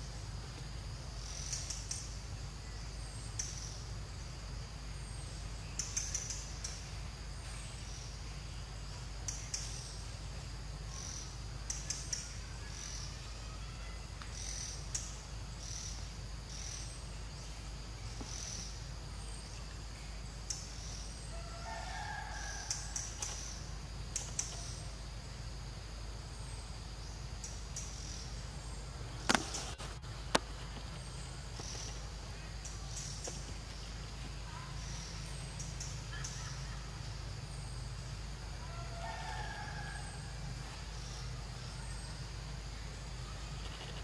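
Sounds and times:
bird chirps: 0:01.2 - 0:03.9.

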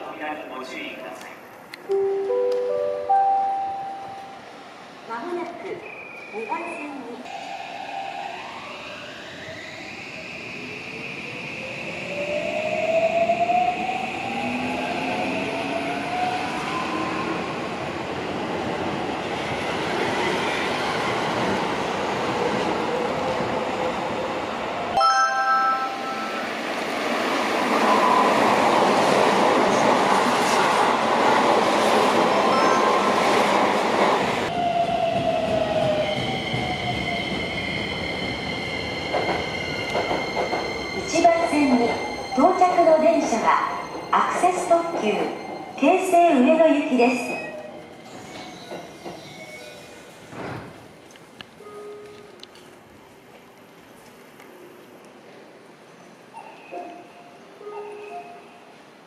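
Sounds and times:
train standing with steady hum: 0:00.0 - 0:12.7, 0:39.0 - 0:59.0
train passing with rushing roar: 0:00.0 - 0:59.0.

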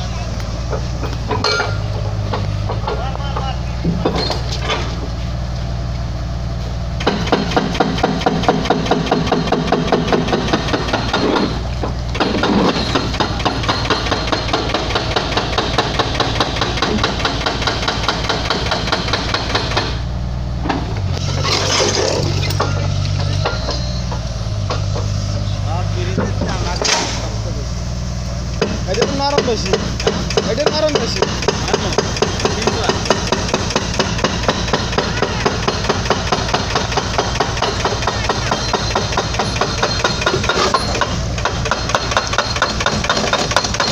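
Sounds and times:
excavator engine running: 0:00.0 - 0:43.9
hydraulic breaker hammering concrete: 0:07.0 - 0:20.0, 0:28.6 - 0:43.9.

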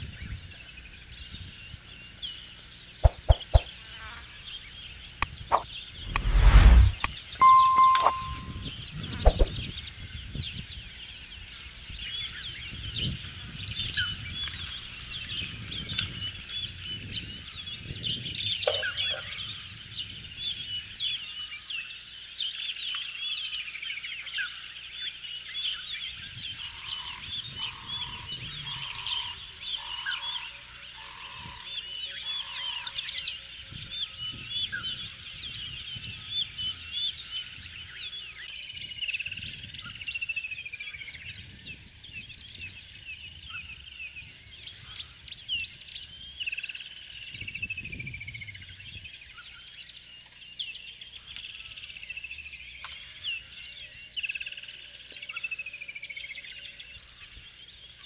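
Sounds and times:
birds chirping and trilling: 0:00.0 - 0:58.0
short low bird notes: 0:05.5 - 0:09.6.

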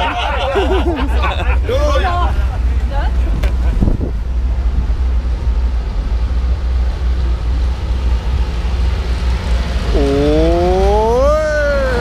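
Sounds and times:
wind buffeting microphone: 0:01.3 - 0:11.0
long rising call: 0:08.5 - 0:12.0.

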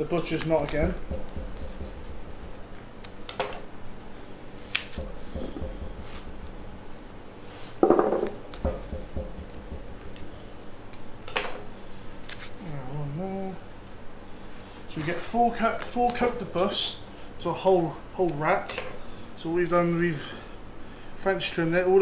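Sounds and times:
faint steady hum: 0:00.0 - 0:22.0
knock: 0:00.8 - 0:02.6, 0:05.0 - 0:06.2, 0:07.8 - 0:10.0.

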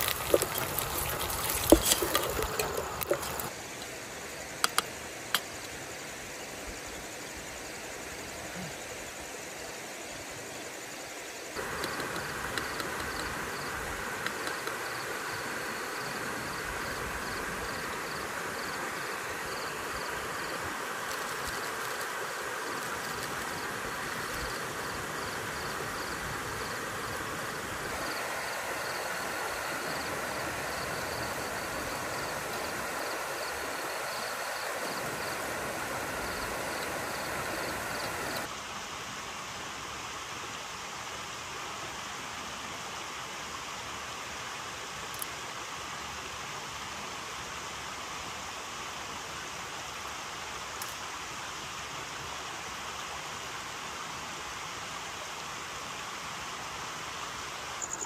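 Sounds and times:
stream water rushing: 0:00.0 - 0:09.7, 0:10.3 - 0:58.0
insects chirping: 0:00.0 - 0:38.5, 0:56.5 - 0:58.0.

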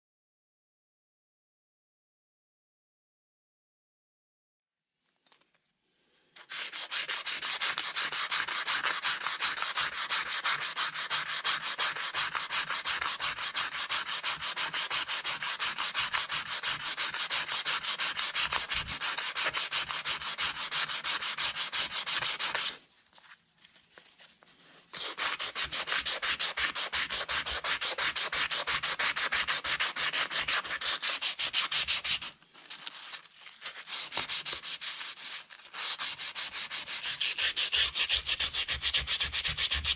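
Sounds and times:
hand sanding rusty metal: 0:06.7 - 0:22.8, 0:25.0 - 0:32.3.

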